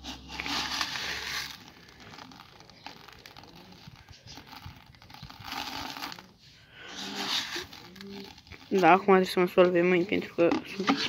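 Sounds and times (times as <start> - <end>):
granules pattering into bucket: 0.0 - 9.4.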